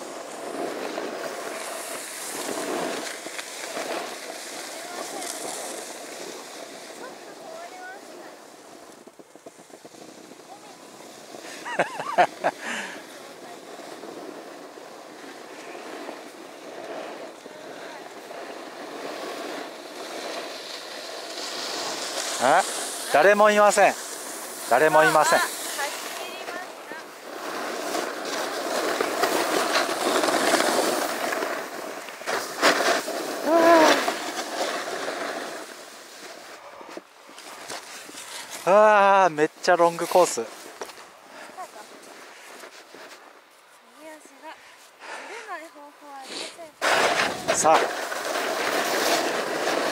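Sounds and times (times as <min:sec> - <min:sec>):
snowboard sliding over snow: 0:00.0 - 0:49.9
short vocal cry: 0:33.4 - 0:34.1
wind on microphone: 0:46.8 - 0:48.0.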